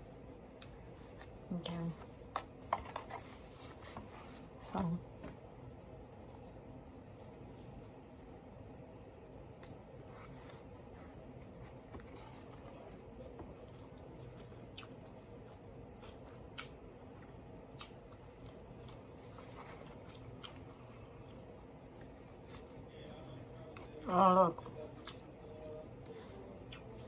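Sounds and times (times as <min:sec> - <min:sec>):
low steady hum: 0:00.0 - 0:27.0
person chewing food: 0:00.1 - 0:04.0, 0:05.3 - 0:27.0.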